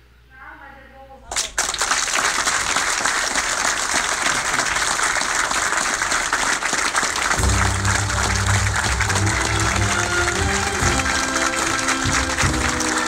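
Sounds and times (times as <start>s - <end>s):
crowd applauding: 1.3s - 13.0s
low bass music: 7.4s - 13.0s.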